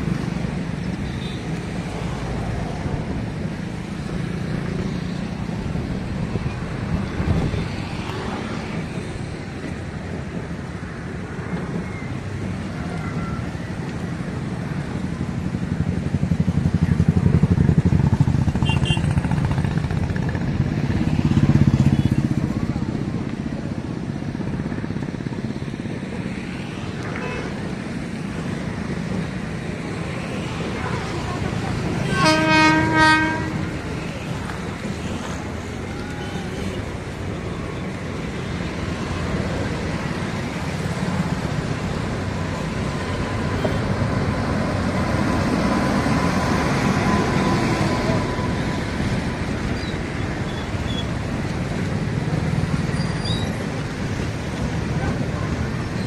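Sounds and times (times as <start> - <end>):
distant train rumble: 0.0 - 56.0
wind buffeting microphone: 2.7 - 32.1.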